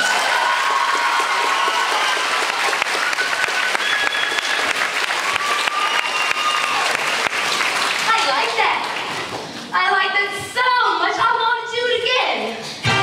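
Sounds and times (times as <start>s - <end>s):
cheering voices: 0.0s - 9.5s
audience applauding: 0.0s - 9.7s.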